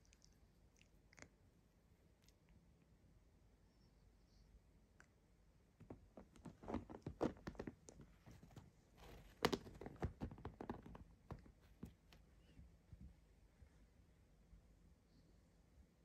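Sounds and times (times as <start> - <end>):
cat paws scrabbling: 5.8 - 12.3
pet carrier taps and rustles: 6.2 - 12.0.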